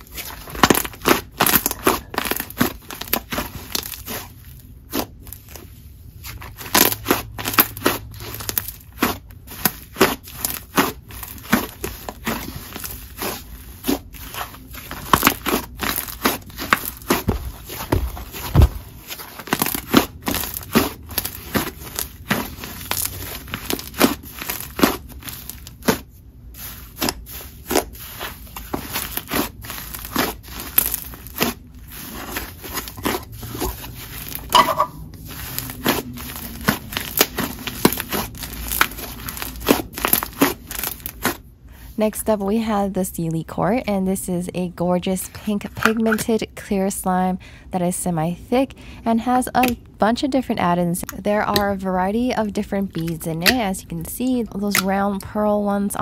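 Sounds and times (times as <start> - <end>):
slime popping and sizzling: 19.4 - 34.6.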